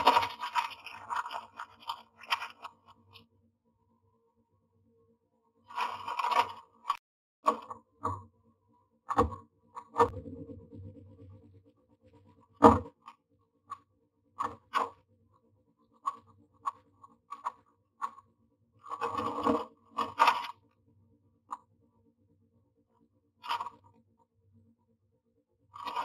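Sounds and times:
dry grass rustling: 0:00.0 - 0:03.0
claws scratching on wood: 0:00.0 - 0:03.1, 0:05.7 - 0:07.0, 0:18.8 - 0:20.6, 0:25.8 - 0:26.0.

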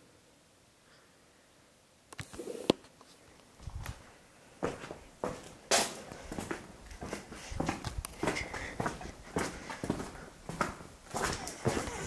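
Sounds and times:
footsteps on hard floor: 0:04.6 - 0:12.0.

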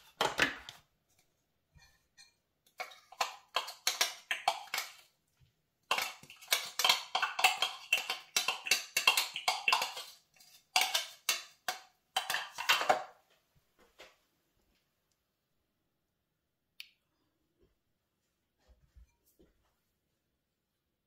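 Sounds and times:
metal spoon scraping plastic bowl: 0:01.8 - 0:05.1, 0:05.9 - 0:13.0.

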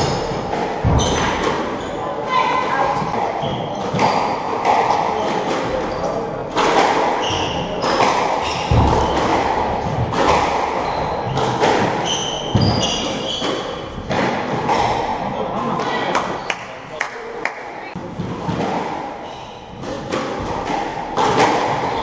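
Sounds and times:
sneakers squeaking on wooden floor: 0:00.0 - 0:15.2, 0:19.2 - 0:19.9
squash ball hitting rackets and walls: 0:00.0 - 0:16.7, 0:18.0 - 0:22.0.

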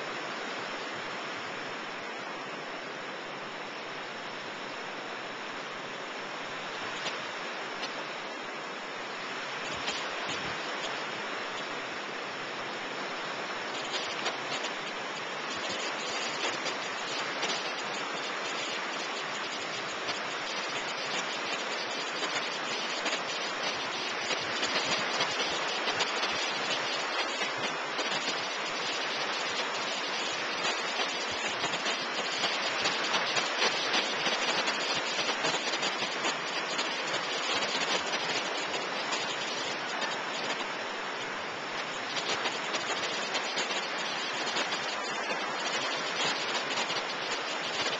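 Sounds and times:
ocean surf breaking: 0:09.5 - 0:47.9.

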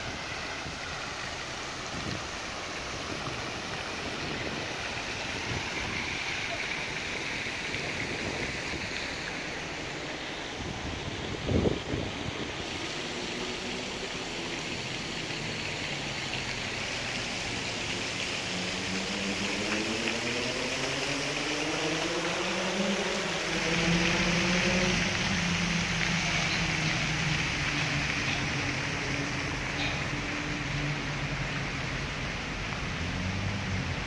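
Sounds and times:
road traffic: 0:00.0 - 0:34.0
vehicle engine rising in pitch: 0:18.5 - 0:31.4.

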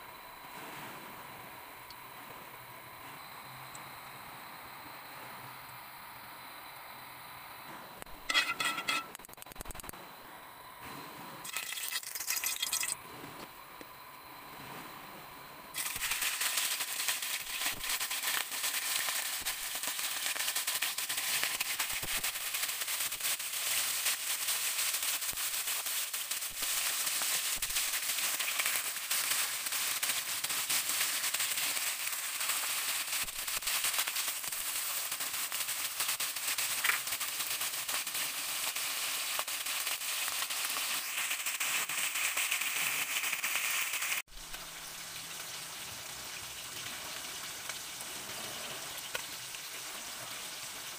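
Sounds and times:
fish sizzling in hot oil: 0:08.2 - 0:09.9, 0:11.4 - 0:13.0, 0:15.7 - 0:50.9.

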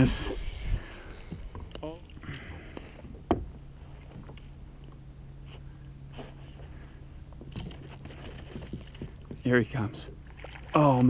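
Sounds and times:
low steady hum: 0:00.0 - 0:11.0
fishing rod knocks and clicks: 0:00.3 - 0:02.6, 0:03.2 - 0:05.0, 0:07.4 - 0:10.5.

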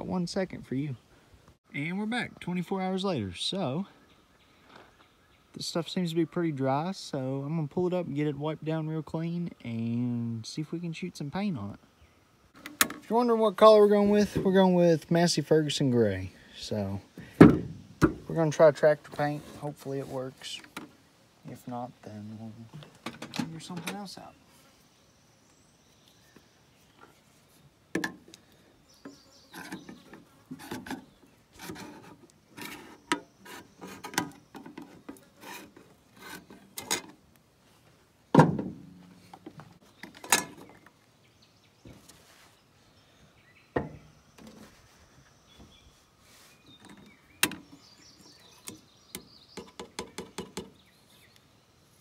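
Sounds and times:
tools clicking and scraping: 0:29.6 - 0:37.2.

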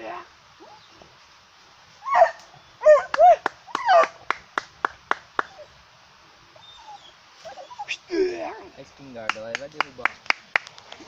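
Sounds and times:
dog yelping: 0:02.0 - 0:04.2, 0:06.6 - 0:08.6.

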